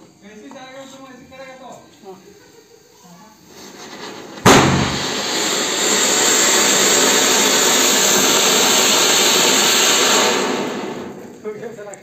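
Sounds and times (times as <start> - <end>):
firework fountain hissing: 0.0 - 12.0
sharp crack: 4.4 - 6.7.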